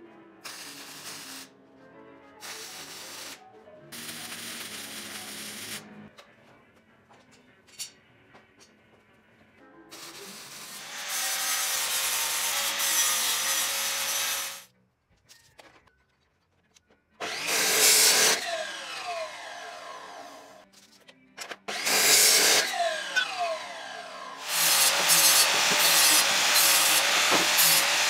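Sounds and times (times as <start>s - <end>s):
arc welding hiss: 0.5s - 1.5s, 2.4s - 3.4s, 4.0s - 5.8s
chop saw cutting steel: 10.3s - 14.7s, 17.2s - 20.6s, 21.7s - 28.0s
saw blade whine winding down: 18.3s - 20.6s, 22.6s - 28.0s.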